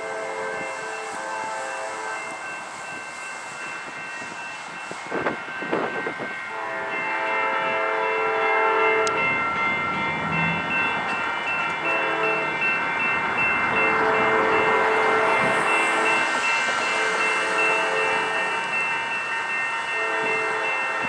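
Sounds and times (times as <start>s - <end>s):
locomotive air horn blasts: 0.0s - 2.5s, 6.5s - 9.4s, 11.8s - 12.6s, 13.7s - 18.7s, 19.8s - 21.0s.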